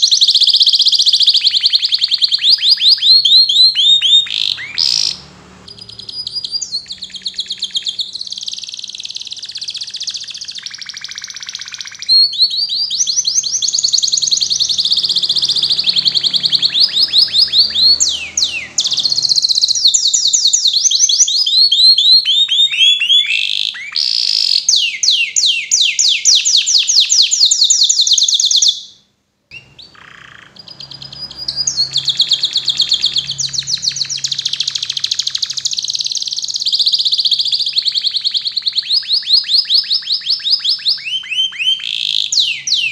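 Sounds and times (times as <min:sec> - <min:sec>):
canary singing trills: 0:00.0 - 0:42.9.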